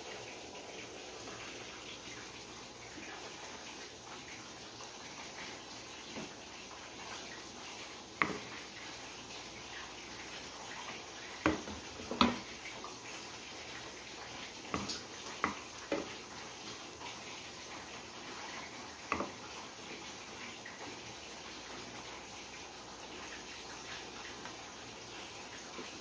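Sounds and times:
wooden spoon knocking on cookware: 0:08.2 - 0:08.5, 0:11.4 - 0:12.5.

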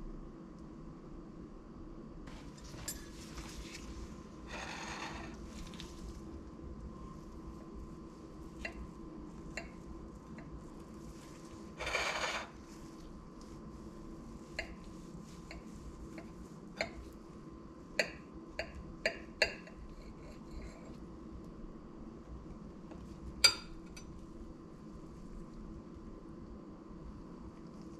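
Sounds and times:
knife and fork clinking on plate: 0:23.4 - 0:24.1.

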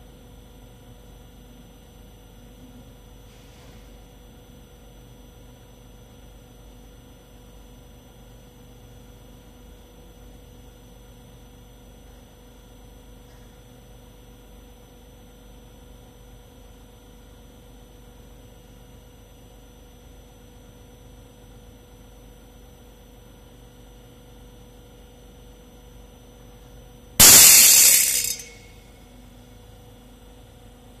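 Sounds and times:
sheet steel tearing: 0:27.2 - 0:28.6.

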